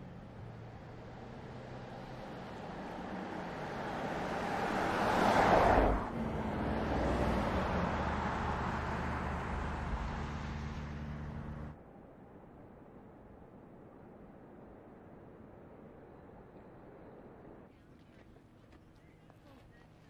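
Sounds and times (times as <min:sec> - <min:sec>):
car driving past: 0:00.4 - 0:11.8.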